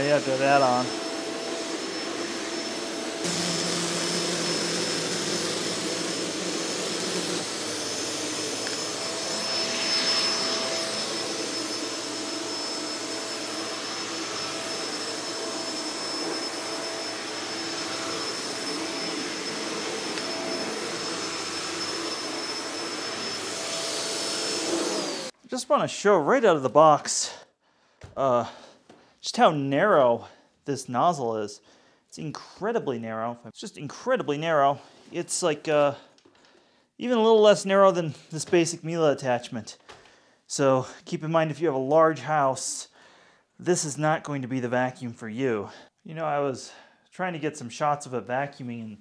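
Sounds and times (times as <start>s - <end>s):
vacuum cleaner running on carpet: 0.0s - 25.3s.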